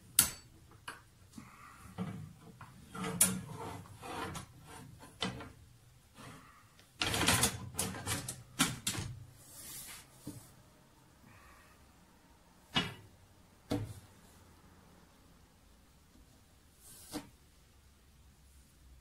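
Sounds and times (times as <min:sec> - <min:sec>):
metallic clicks and scraping: 0:02.0 - 0:05.6.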